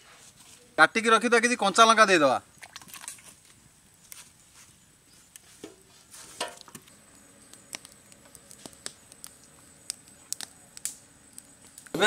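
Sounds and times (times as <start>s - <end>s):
wood fire crackling: 3.4s - 12.0s.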